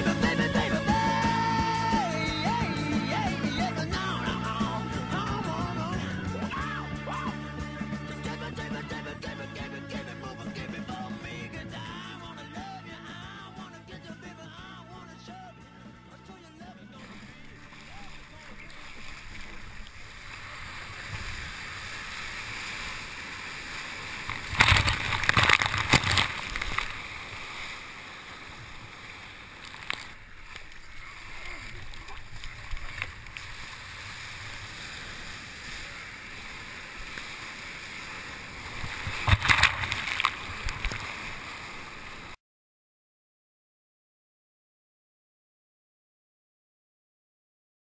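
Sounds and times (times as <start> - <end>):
breaking whitewater crashes: 0.0 - 9.3, 17.0 - 42.4
sea water rushing past kayak: 0.0 - 13.5, 17.0 - 42.4.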